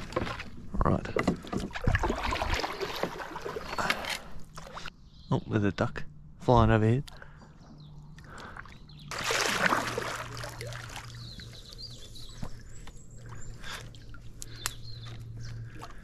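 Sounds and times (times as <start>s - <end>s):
paddle pushing through water: 0.0s - 4.9s
water splash: 1.7s - 3.8s, 9.1s - 11.5s.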